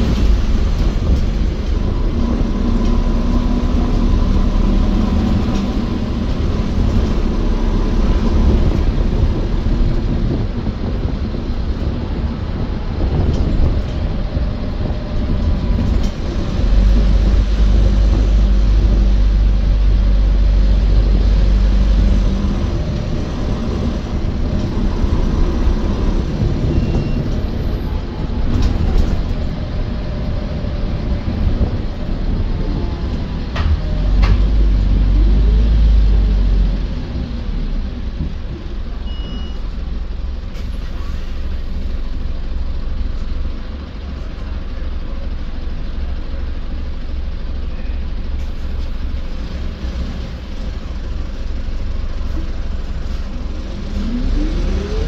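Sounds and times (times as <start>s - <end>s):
bus engine and road rumble: 0.0s - 55.0s
short beep: 26.6s - 27.3s, 39.0s - 39.7s.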